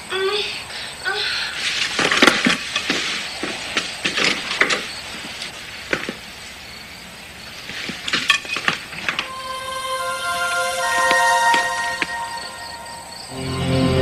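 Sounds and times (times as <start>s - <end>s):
clothing rustling: 1.6s - 6.6s
film score music: 9.2s - 14.0s.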